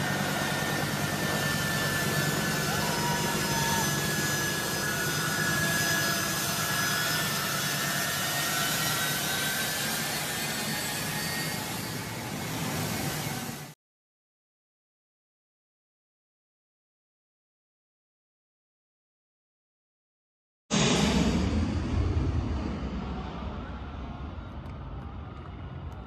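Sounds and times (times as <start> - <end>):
jet engines rushing and whining: 0.0 - 13.8, 20.7 - 26.0.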